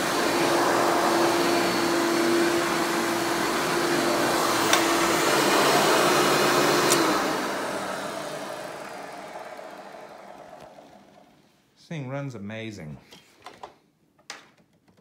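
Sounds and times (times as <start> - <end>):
vacuum cleaner running on carpet: 0.0 - 11.5
motor winding down: 3.9 - 11.5
vacuum switch click: 4.6 - 5.0, 6.8 - 7.2.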